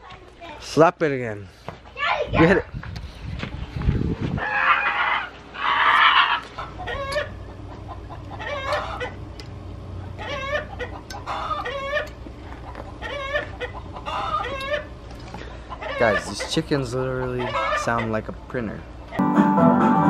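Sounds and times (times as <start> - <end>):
chickens clucking: 3.5 - 18.4.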